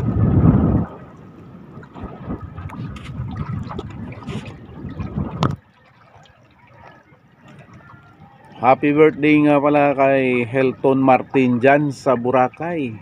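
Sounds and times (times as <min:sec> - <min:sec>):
sea water splashing against boat: 0:00.0 - 0:13.0
wind buffeting microphone: 0:00.0 - 0:13.0.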